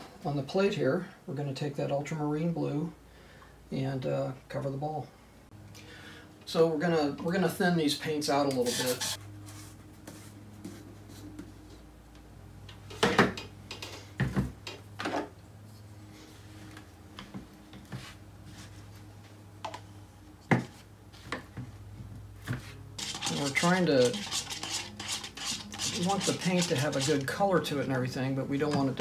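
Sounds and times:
stick scraping paint from jar: 0:23.0 - 0:27.3.

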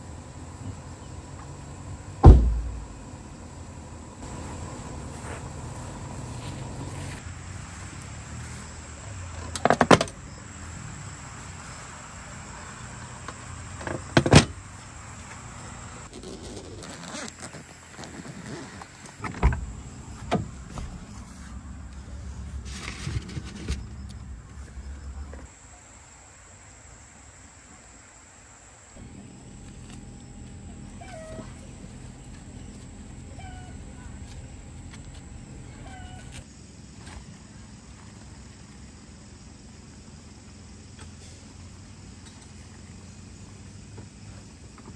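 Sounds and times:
sharp knocks and thuds: 0:02.2 - 0:03.0
low steady hum: 0:29.0 - 0:36.4.

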